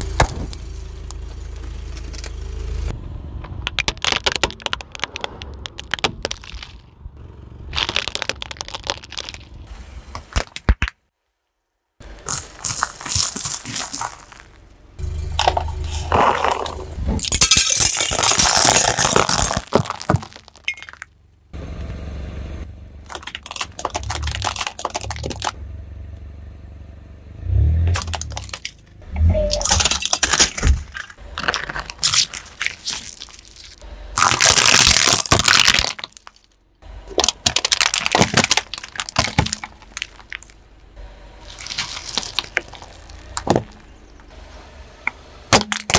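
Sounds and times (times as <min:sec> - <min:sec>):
car tyre crushing objects: 0:00.0 - 0:02.8, 0:03.4 - 0:11.2, 0:12.0 - 0:21.6, 0:23.0 - 0:25.6, 0:27.4 - 0:45.9
gel beads squashing and popping: 0:07.8 - 0:09.6, 0:12.2 - 0:14.5, 0:16.1 - 0:21.0, 0:23.1 - 0:25.6, 0:31.4 - 0:36.5, 0:37.1 - 0:40.5, 0:41.5 - 0:43.5.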